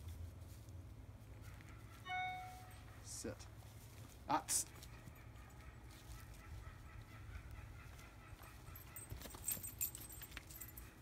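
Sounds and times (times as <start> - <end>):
low outdoor rumble: 0.0 - 11.0
leash and collar jingle: 2.1 - 3.0, 8.3 - 11.0.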